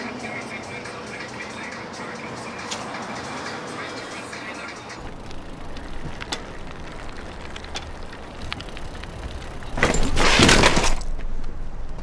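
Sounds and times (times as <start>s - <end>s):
low steady rumble: 5.0s - 9.8s
bicycle crashing to ground: 5.0s - 11.2s.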